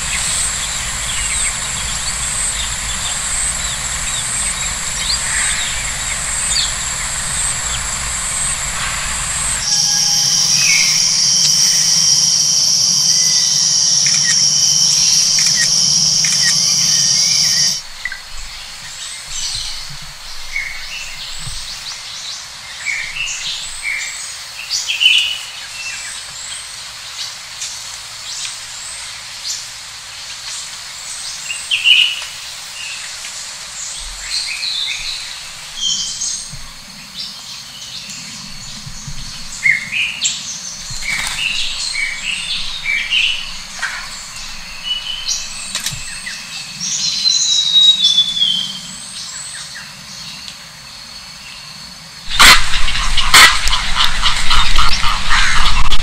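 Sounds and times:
birds chirping: 0.0 - 22.0, 33.8 - 56.0.

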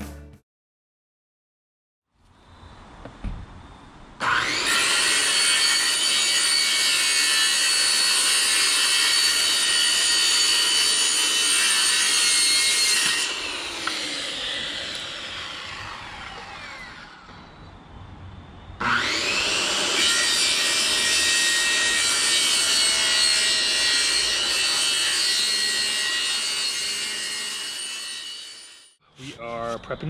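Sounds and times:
circular saw cutting: 4.2 - 17.6, 18.8 - 29.0
saw blade winding down: 4.2 - 17.6, 18.8 - 29.0.

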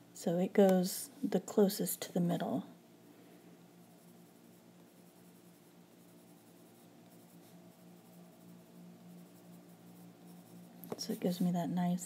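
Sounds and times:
steady low hum: 0.0 - 12.0
colored pencil scratching paper: 3.8 - 11.4.

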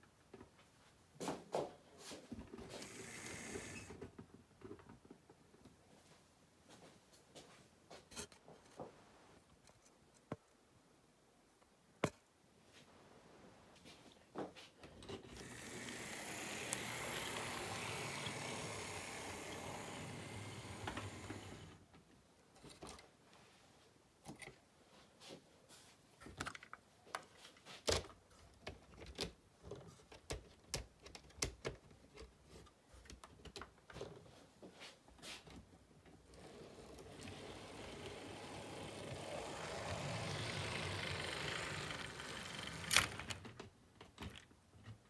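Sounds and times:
model train rolling rumble: 15.3 - 21.8, 36.3 - 43.4
wheels clicking on track: 15.3 - 21.8, 36.4 - 43.4.

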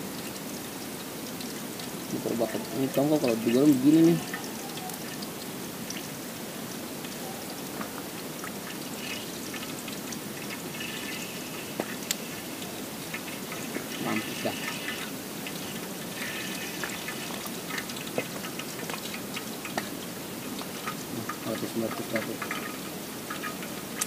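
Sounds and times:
fish sizzling in a pan: 0.0 - 24.0
utensil clicking against pan: 16.5 - 24.0.

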